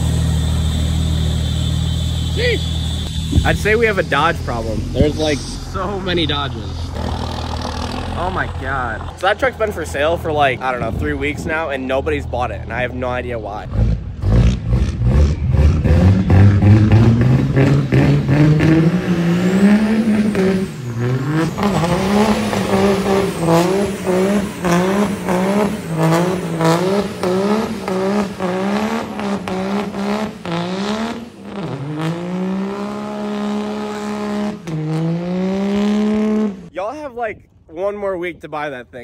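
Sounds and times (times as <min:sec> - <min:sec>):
spinning tyres hissing: 0:00.0 - 0:10.4
truck engine revving: 0:00.0 - 0:36.7.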